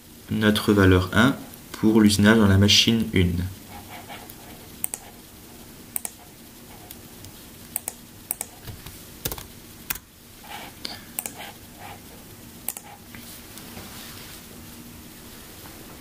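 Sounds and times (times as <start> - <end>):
low steady hum: 0.0 - 16.0
mouse and keyboard clicks: 4.2 - 5.1, 6.0 - 6.2, 7.8 - 9.5, 11.2 - 11.4, 12.7 - 12.9.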